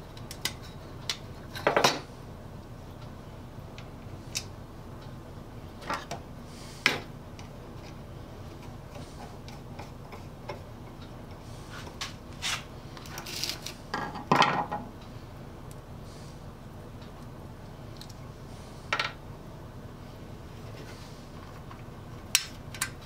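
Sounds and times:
saw parts clattering on workbench: 0:14.0 - 0:14.8.

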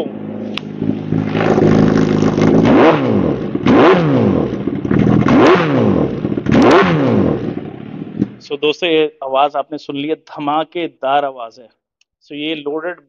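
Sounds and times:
motorcycle engine revving: 0:00.0 - 0:08.4.

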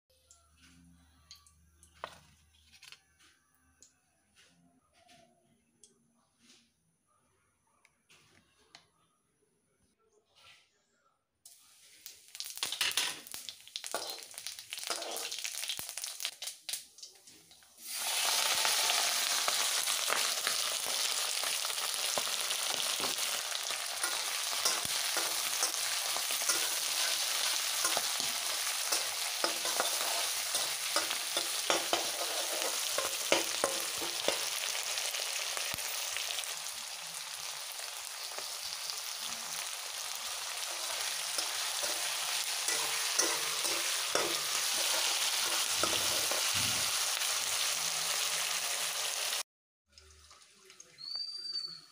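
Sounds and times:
food sizzling in hot oil: 0:11.8 - 0:17.2, 0:17.8 - 0:49.4.

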